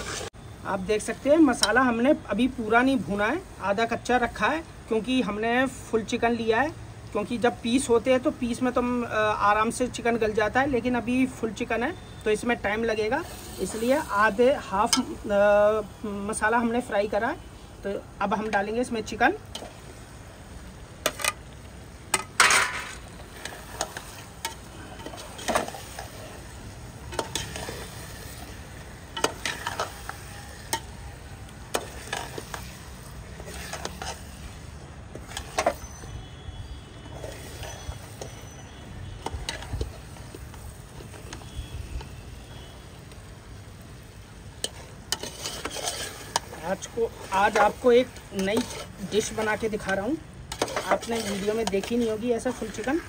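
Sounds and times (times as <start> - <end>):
masala sizzling: 0.0 - 53.0
spoon scraping cooking pot: 31.7 - 34.4, 35.1 - 36.0, 37.1 - 38.6, 44.6 - 53.0.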